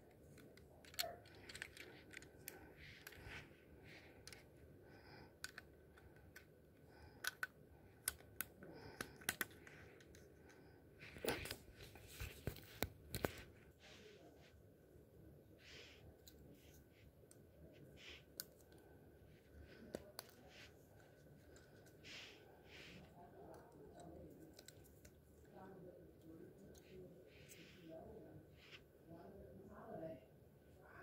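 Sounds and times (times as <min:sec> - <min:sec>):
plastic pieces clicking and snapping: 0:00.0 - 0:03.2, 0:05.4 - 0:06.5, 0:07.1 - 0:10.2.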